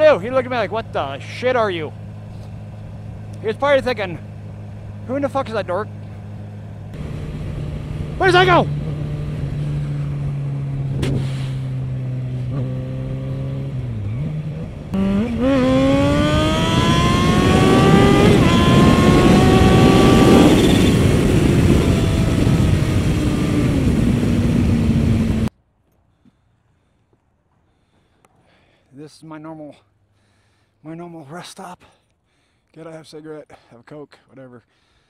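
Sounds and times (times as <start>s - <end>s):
motorcycle engine accelerating: 0.0s - 25.5s
wind noise: 7.0s - 12.0s, 13.5s - 25.5s.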